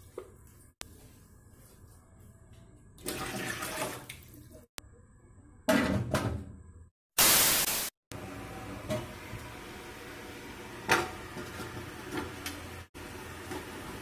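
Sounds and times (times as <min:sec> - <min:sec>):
static hiss burst: 0:07.2 - 0:08.0.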